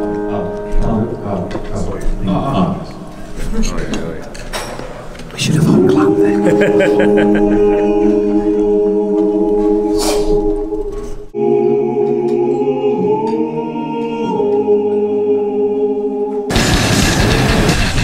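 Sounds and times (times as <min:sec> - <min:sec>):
choir-like vocal chords: 0:05.4 - 0:17.7.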